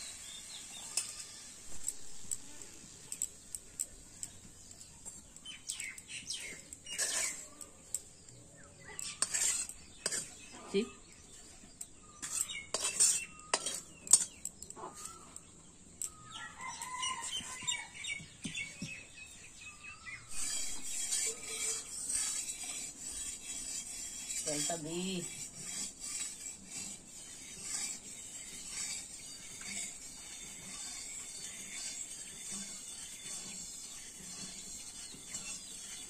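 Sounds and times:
steady high hiss: 0:00.0 - 0:03.5
birds chirping: 0:01.8 - 0:25.4.

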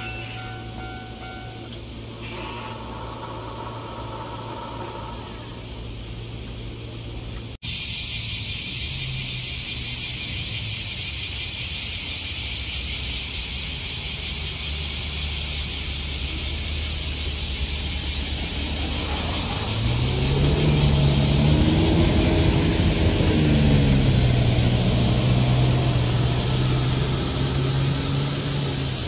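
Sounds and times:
steady high buzz: 0:00.0 - 0:21.4
bus diesel engine rumbling and revving: 0:00.0 - 0:29.0.

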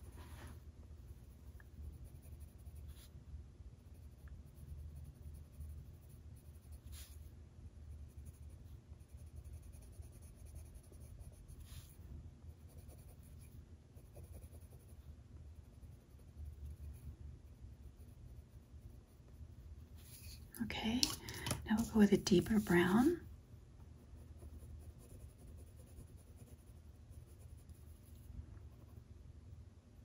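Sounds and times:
low steady hum: 0:00.0 - 0:30.0
pencil scratching on paper: 0:01.2 - 0:03.1, 0:03.9 - 0:07.3, 0:08.0 - 0:12.0, 0:12.6 - 0:15.0, 0:15.6 - 0:17.1, 0:20.0 - 0:23.2, 0:24.2 - 0:28.9.

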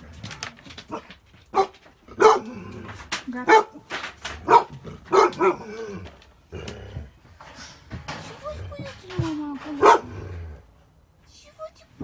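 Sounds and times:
dog barking: 0:01.5 - 0:02.5, 0:03.5 - 0:03.8, 0:04.4 - 0:05.7, 0:09.8 - 0:10.2.

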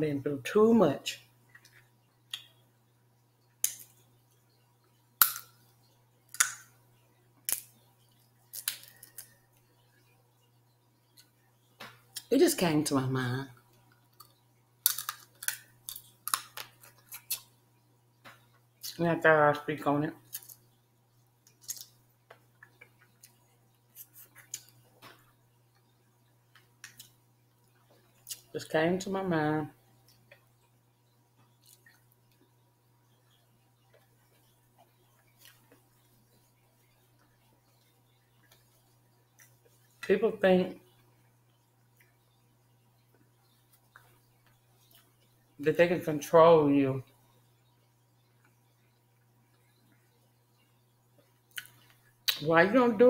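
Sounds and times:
low steady hum: 0:00.0 - 0:53.0
crab shells cracking: 0:05.2 - 0:05.6, 0:06.3 - 0:06.7, 0:07.5 - 0:07.8, 0:08.5 - 0:09.4, 0:14.1 - 0:17.5, 0:21.4 - 0:22.0
mouth clicks and chewing smacks: 0:51.5 - 0:52.4.

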